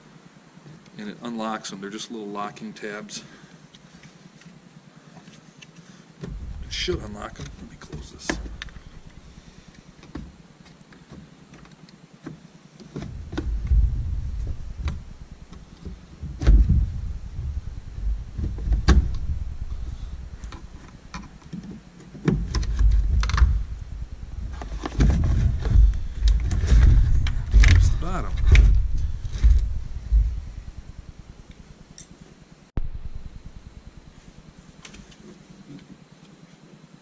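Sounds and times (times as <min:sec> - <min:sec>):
low handling rumble: 0:06.2 - 0:10.6, 0:13.0 - 0:35.3.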